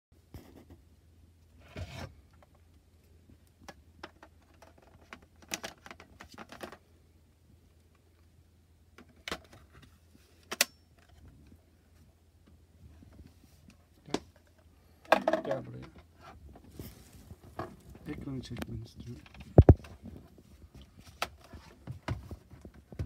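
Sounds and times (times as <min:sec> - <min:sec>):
plastic clicks and knocks: 0:03.6 - 0:06.8.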